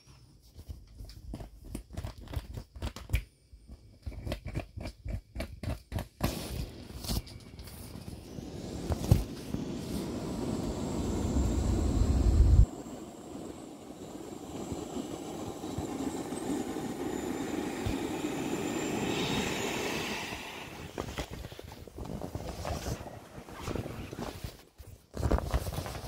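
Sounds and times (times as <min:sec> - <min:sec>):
air rushing out of valve: 0:06.2 - 0:12.7, 0:17.4 - 0:21.8
heavy low rumble: 0:07.9 - 0:21.4
vinyl crinkling: 0:21.0 - 0:26.0.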